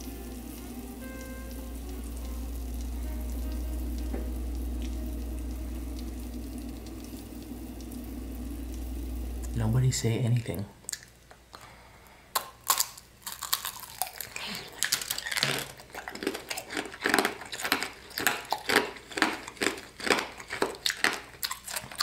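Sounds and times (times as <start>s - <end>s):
candy shell crunching: 12.4s - 22.0s.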